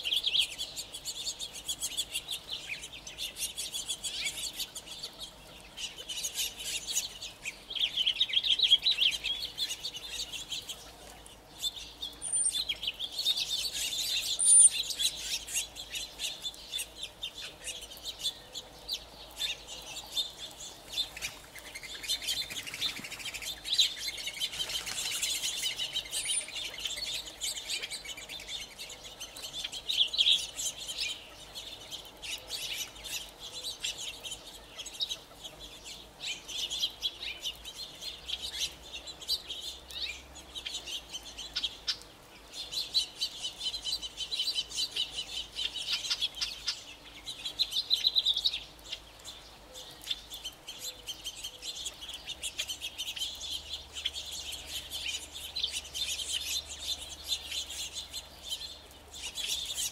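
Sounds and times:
quail flock chattering: 0.0s - 18.7s, 19.4s - 39.8s.

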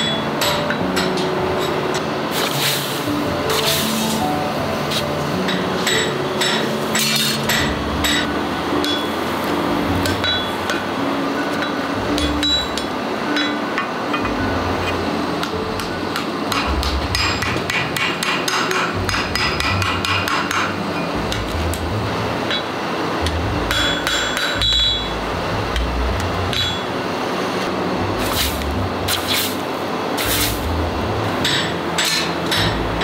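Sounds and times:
hammer striking steel on anvil: 0.0s - 2.0s, 5.4s - 9.2s, 10.0s - 10.9s, 11.6s - 14.4s, 15.4s - 21.4s, 23.3s - 25.2s, 26.5s - 26.9s, 31.4s - 33.0s
hot steel hissing in water: 30.2s - 30.6s.

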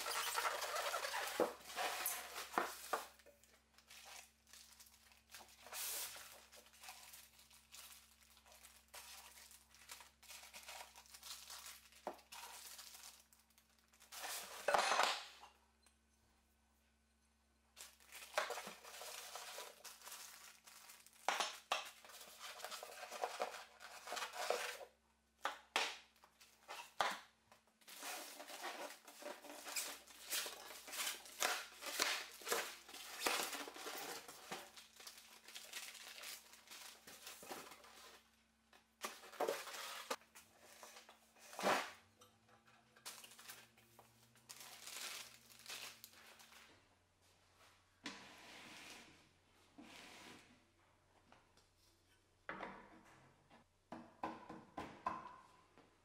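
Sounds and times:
polystyrene pieces rubbing: 0.0s - 3.2s, 3.8s - 14.8s, 44.4s - 46.5s
plastic bags crinkling: 0.0s - 14.8s, 17.8s - 24.8s, 27.8s - 38.3s, 43.0s - 46.6s.

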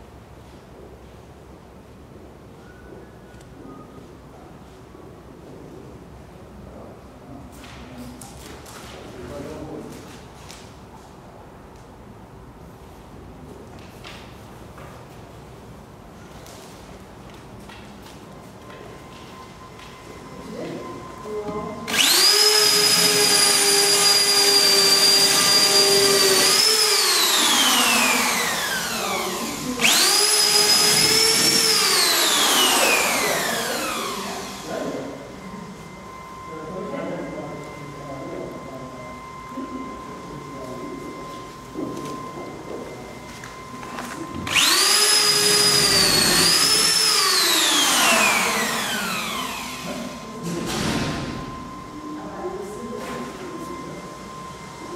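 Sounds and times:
electric drill whining: 21.8s - 35.2s, 44.0s - 50.5s
drill motor winding down: 21.9s - 35.2s, 44.3s - 51.5s.

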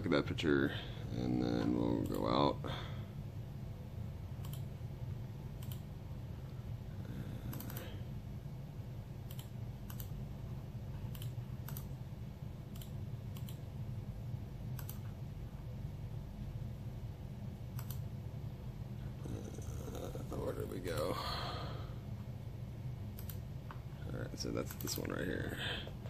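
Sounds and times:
steady low hum: 0.0s - 26.0s
computer mouse buttons clicking: 4.4s - 4.7s, 5.6s - 5.9s, 7.5s - 7.9s, 9.3s - 10.2s, 11.1s - 11.9s, 14.8s - 15.1s, 17.7s - 18.0s, 23.2s - 23.4s.

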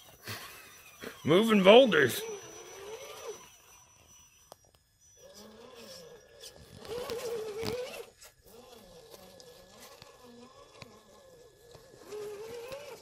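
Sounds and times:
small electric motor whining: 0.0s - 13.0s
clicks of tires on rock: 2.3s - 13.0s.

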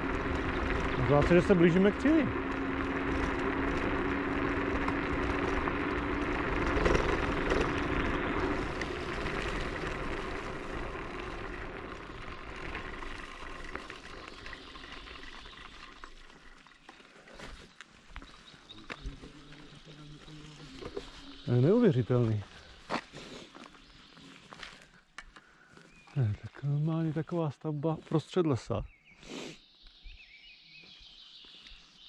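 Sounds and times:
tyres rolling on track: 0.0s - 14.0s
electric motor hum: 0.0s - 16.1s.

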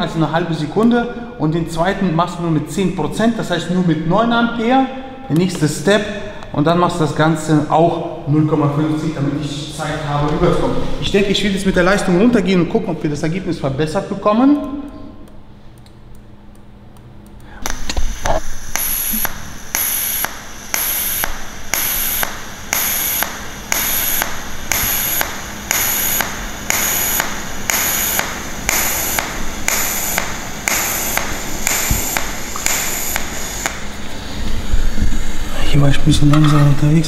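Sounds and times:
pulsed welding arc buzzing: 14.7s - 37.0s.

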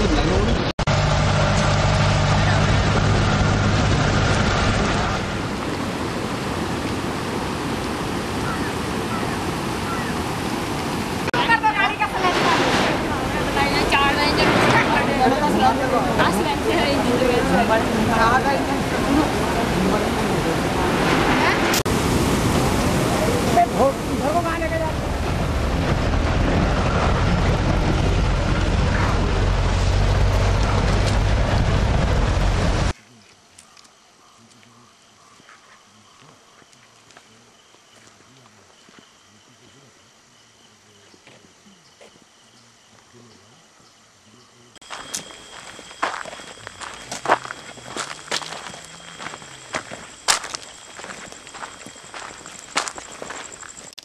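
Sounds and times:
heavy low rumble: 0.0s - 6.4s, 12.0s - 32.9s
vehicle engine humming: 0.0s - 8.6s, 10.6s - 32.9s
river in flood rushing: 0.0s - 33.0s, 44.9s - 54.0s.

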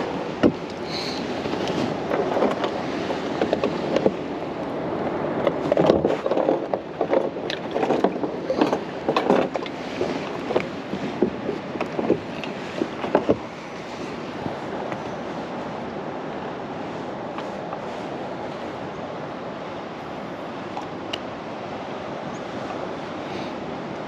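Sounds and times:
knocks and rattles on kayak hull: 0.0s - 15.6s
water splashing and sloshing: 0.0s - 24.0s.

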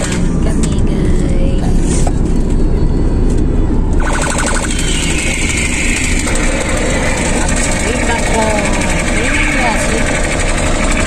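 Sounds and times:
car road and engine rumble: 0.0s - 11.0s
rapid electronic pulsing: 4.0s - 11.0s.

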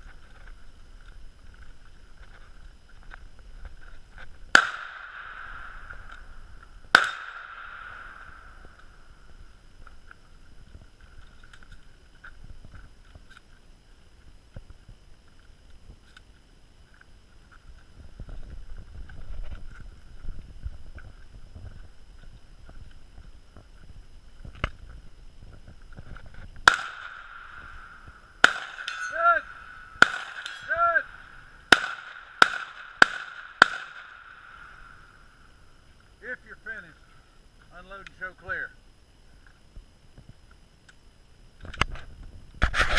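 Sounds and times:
handgun shots echoing: 4.5s - 6.2s, 6.9s - 8.4s, 26.6s - 27.5s, 28.4s - 30.8s, 31.7s - 34.4s.

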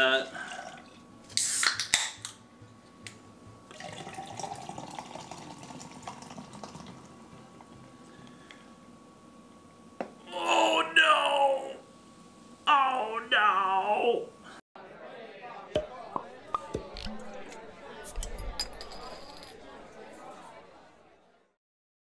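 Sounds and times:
can cracked open with hiss: 1.4s - 2.3s
liquid pouring into metal tumbler: 3.7s - 7.0s.

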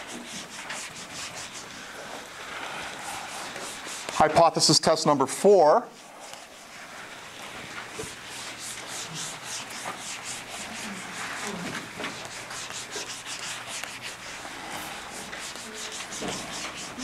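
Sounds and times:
eraser rubbing on whiteboard: 0.0s - 5.0s, 5.9s - 17.0s.

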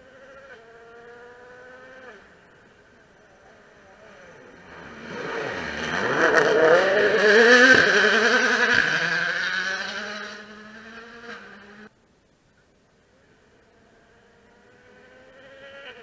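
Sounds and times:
rally car engine passing: 0.0s - 11.9s, 13.5s - 16.0s.

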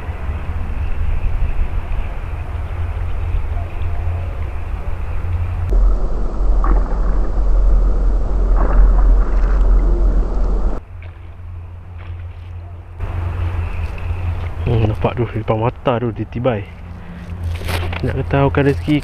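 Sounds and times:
wind buffeting microphone: 0.0s - 10.8s
water splashes: 5.7s - 12.5s.

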